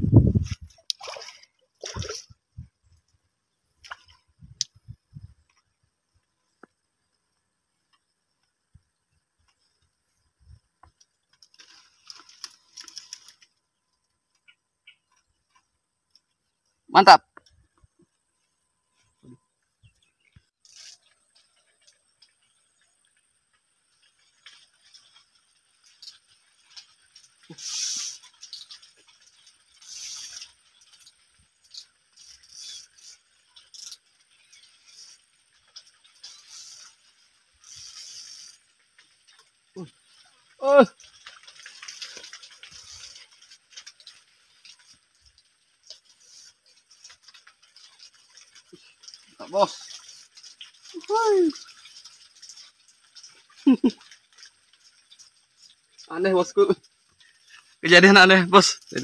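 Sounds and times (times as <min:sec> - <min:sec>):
rustling: 0:10.9 - 0:14.1, 0:23.4 - 0:59.0
fishing reel clicks and scrapes: 0:20.6 - 0:21.2, 0:25.8 - 0:38.8, 0:41.3 - 0:53.4.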